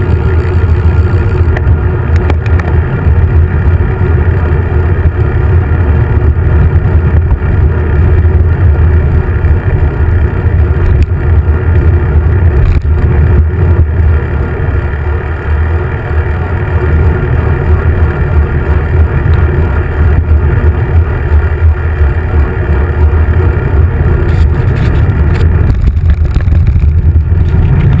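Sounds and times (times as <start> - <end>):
wind buffeting microphone: 16.5 - 28.0.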